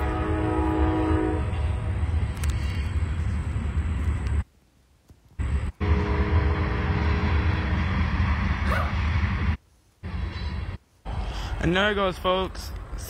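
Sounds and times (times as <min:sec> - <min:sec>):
locomotive air horn: 0:00.0 - 0:02.0, 0:05.8 - 0:07.7
freight train rumbling: 0:00.0 - 0:04.4, 0:05.4 - 0:13.0.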